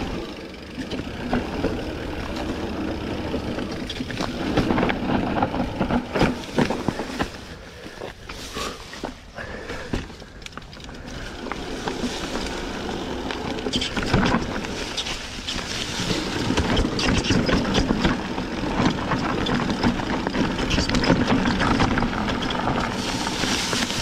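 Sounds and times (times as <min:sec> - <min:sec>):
bike rattling over bumps: 0:00.0 - 0:24.0
tyres crunching over dirt: 0:00.0 - 0:24.0.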